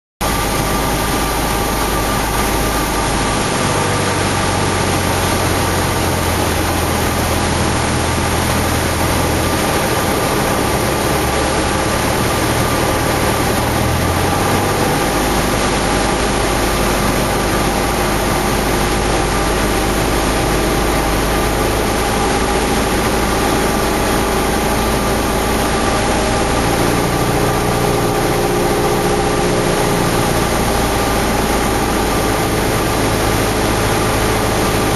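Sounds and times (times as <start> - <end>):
airplane engine and propeller drone: 0.2 - 34.9.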